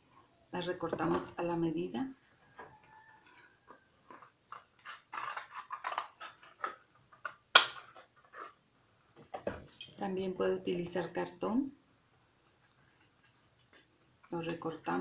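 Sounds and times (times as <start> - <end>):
scissors cutting cardboard: 4.5 - 8.6.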